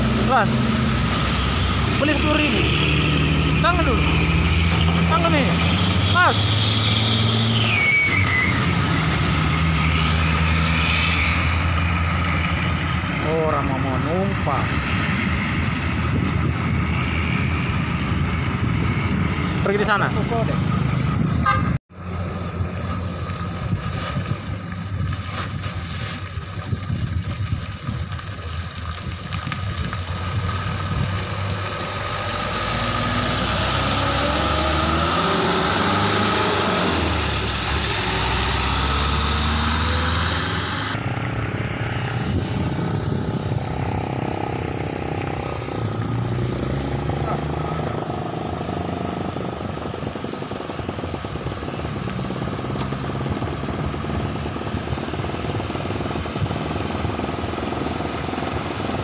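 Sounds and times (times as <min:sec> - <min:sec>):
dump truck driving past: 0:00.0 - 0:19.7, 0:30.0 - 0:49.4
distant truck engine: 0:00.0 - 0:26.6, 0:27.7 - 0:59.0.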